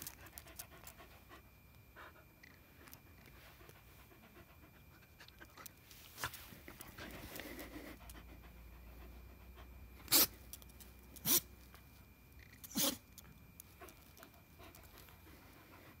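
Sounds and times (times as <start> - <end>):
dog breathing: 6.8 - 9.9.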